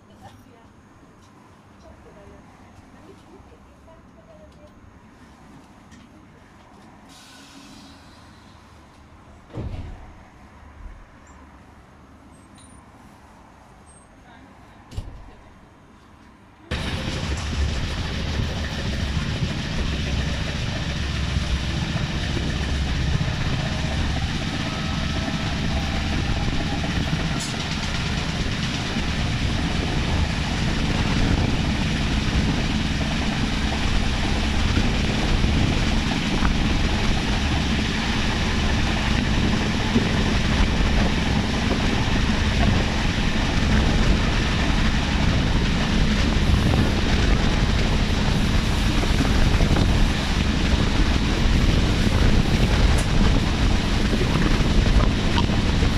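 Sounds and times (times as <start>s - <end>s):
train wheels rumbling on rails: 5.6s - 11.0s, 14.9s - 55.9s
rushing air: 16.7s - 55.9s.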